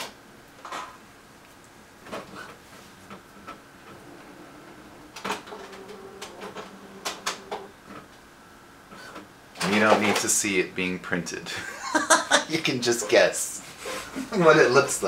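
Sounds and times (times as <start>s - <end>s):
faint printer whirr: 0.1s - 15.0s
printer clicks and clunks: 5.0s - 8.1s.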